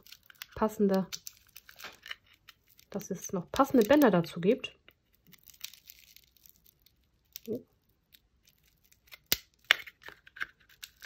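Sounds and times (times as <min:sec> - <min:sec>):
plastic wrapping rustling: 0:00.0 - 0:04.3, 0:05.1 - 0:11.0.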